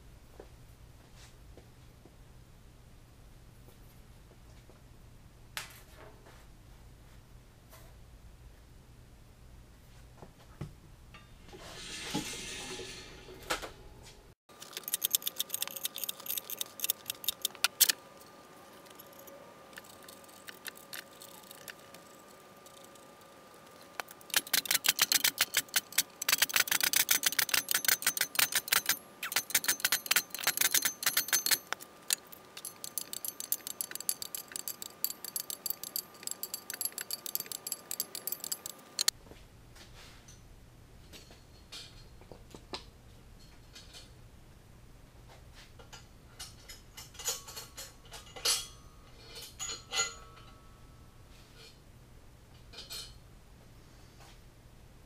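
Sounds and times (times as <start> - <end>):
ratchet wrench clicking rapidly: 14.6 - 18.0, 24.3 - 39.1
short metallic clinks: 24.3 - 39.1.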